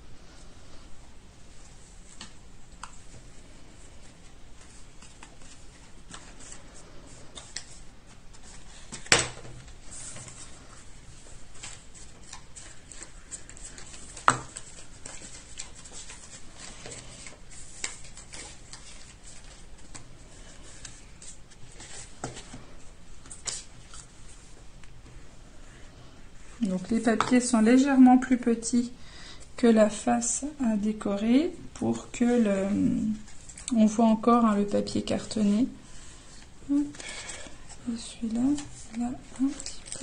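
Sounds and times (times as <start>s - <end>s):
paper rustling and tapping: 7.3s - 10.4s, 11.6s - 20.1s.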